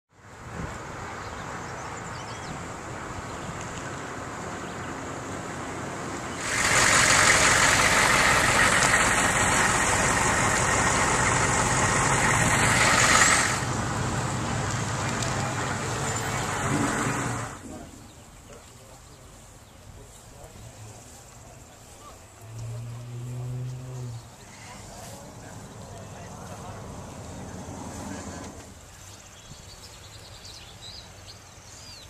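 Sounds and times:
vehicle engine running: 4.3 - 17.6, 22.3 - 28.8.

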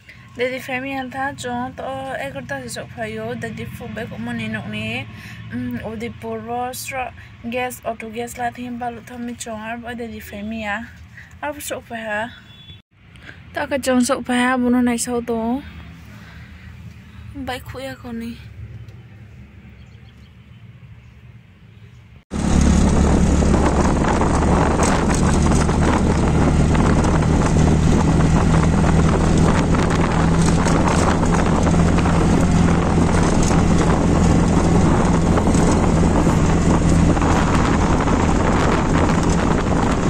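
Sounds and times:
auto rickshaw engine running: 0.0 - 10.1, 22.3 - 40.0
wind and road noise: 0.0 - 40.0.

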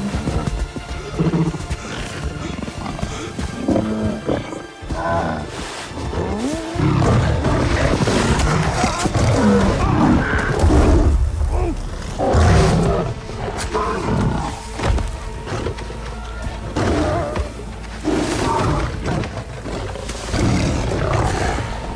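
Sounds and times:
lion growling and roaring: 0.0 - 15.9, 16.6 - 21.9
heavy low rumble: 9.9 - 16.7.

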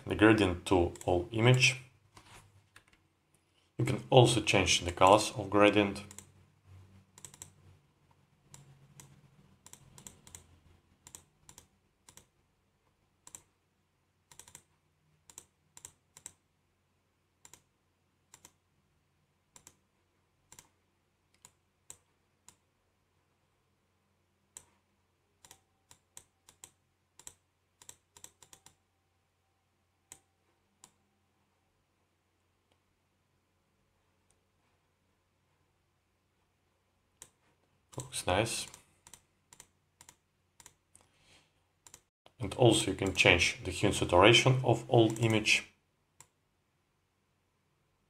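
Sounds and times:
mouse and keyboard clicks: 6.0 - 6.3, 7.1 - 7.6, 8.5 - 12.3, 13.2 - 13.5, 14.3 - 14.7, 15.3 - 16.4, 17.4 - 17.7, 18.3 - 18.6, 19.5 - 19.8, 25.4 - 28.8, 37.2 - 41.1, 41.8 - 42.1.

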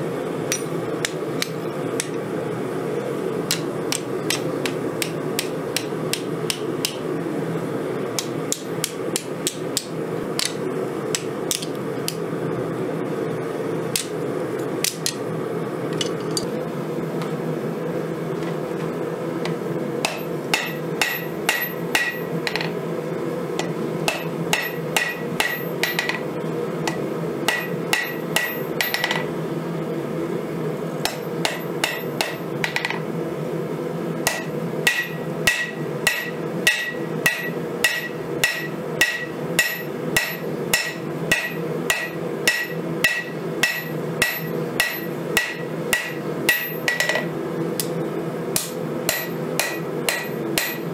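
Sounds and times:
hammer striking hot steel on anvil: 0.5 - 2.2, 3.5 - 7.1, 8.2 - 11.7, 13.9 - 14.2, 14.8 - 15.2, 19.4 - 22.8, 23.6 - 26.3, 26.9 - 29.3, 31.0 - 33.0, 34.2 - 47.9, 48.6 - 50.9.

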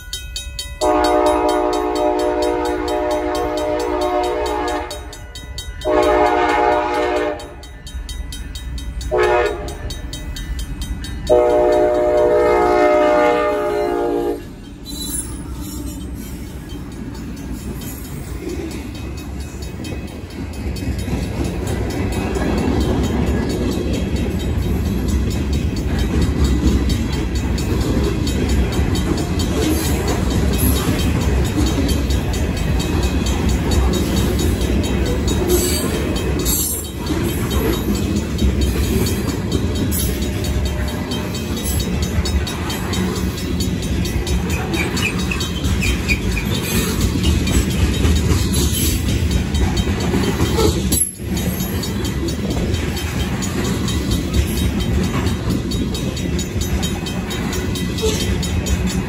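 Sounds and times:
mechanical crossing bell ringing: 0.0 - 59.0
train wheels clattering on rails: 0.0 - 59.0
locomotive horn blasts: 0.8 - 5.1, 5.8 - 7.6, 9.1 - 9.8, 11.3 - 14.6.

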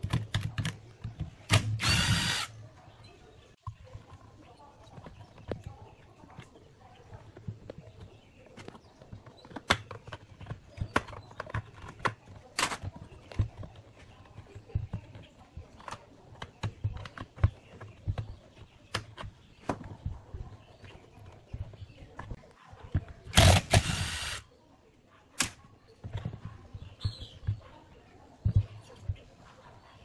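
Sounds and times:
plastic and metal clicks and knocks: 0.0 - 1.8, 4.8 - 23.8.

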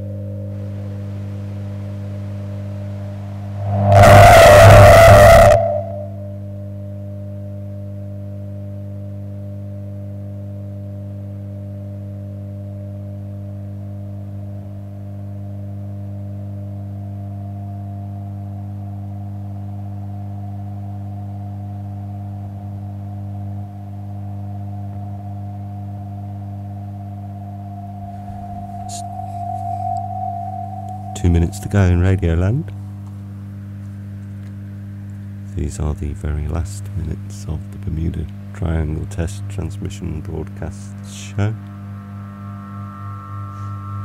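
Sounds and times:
droning low tones: 0.0 - 44.0
higher tone rising in pitch: 0.6 - 6.8, 24.6 - 33.6, 40.9 - 44.0.

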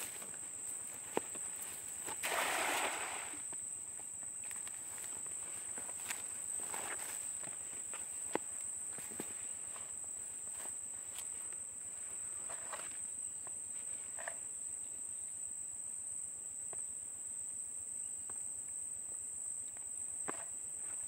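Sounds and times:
insect chorus buzzing: 0.0 - 21.0
net splashing in water: 2.2 - 3.4.

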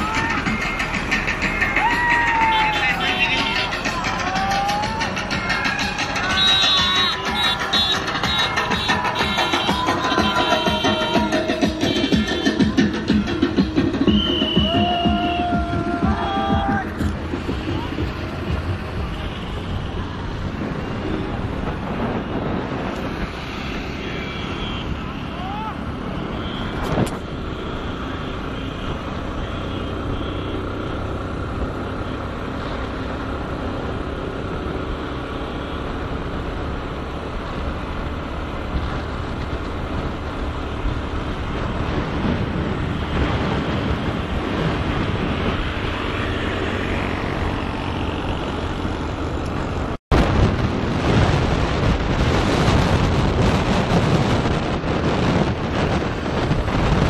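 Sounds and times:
vehicle engine and road noise: 0.0 - 57.0
wind buffeting microphone: 38.6 - 47.9, 48.8 - 57.0.

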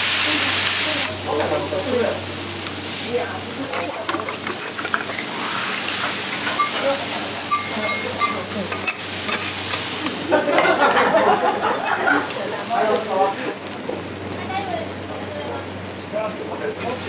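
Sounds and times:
egg sizzling on a hot griddle: 0.0 - 17.0
metal spatula scraping griddle: 3.7 - 10.2.

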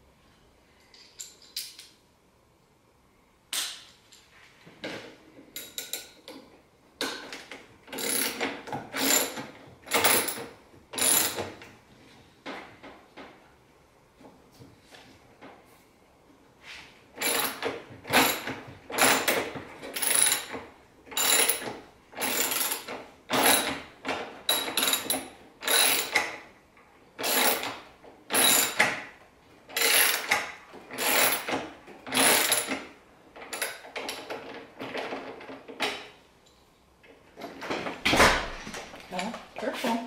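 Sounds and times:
ratchet wrench clicking: 8.0 - 8.4.

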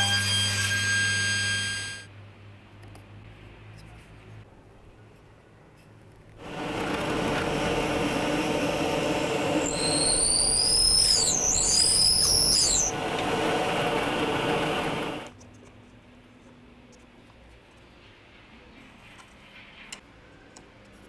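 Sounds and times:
high wavering squeal: 0.0 - 2.1, 9.4 - 13.0
drill press boring into wood: 6.4 - 15.3.

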